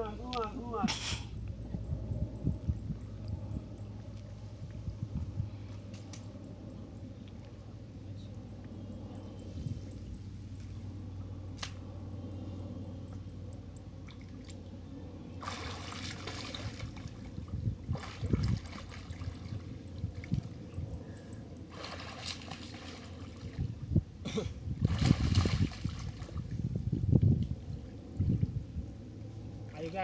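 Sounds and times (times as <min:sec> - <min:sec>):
water splashing and sloshing: 0:13.8 - 0:14.7, 0:15.3 - 0:20.8, 0:21.6 - 0:23.9, 0:24.8 - 0:26.8.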